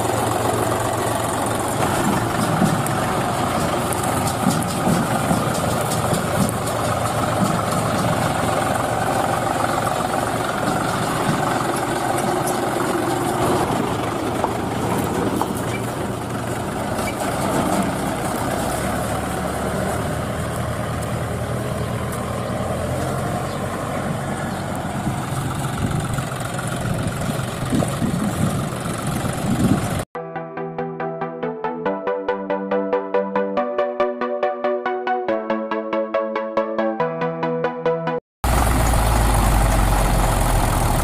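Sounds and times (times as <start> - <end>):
tractor engine running: 0.0 - 30.1, 38.4 - 41.0.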